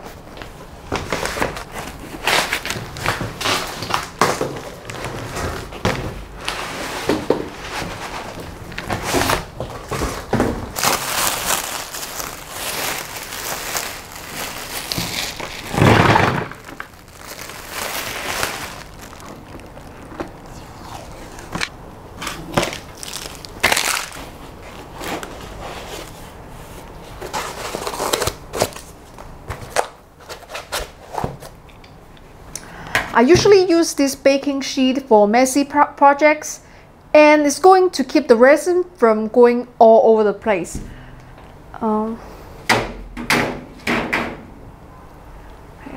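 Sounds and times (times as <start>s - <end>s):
foam packing rustles and knocks: 0.9s - 20.5s
plastic wrapping crinkling: 6.4s - 26.2s.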